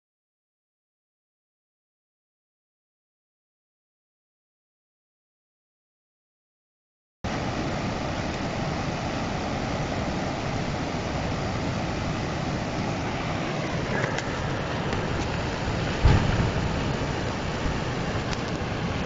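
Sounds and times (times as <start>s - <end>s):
river rushing: 7.3s - 19.0s
short low thump: 16.0s - 16.9s.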